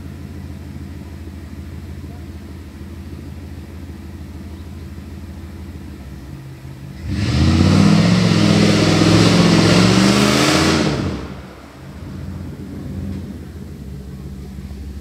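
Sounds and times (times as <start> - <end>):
engine idling and revving: 0.0 - 15.0
tyres churning through mud: 7.0 - 14.3.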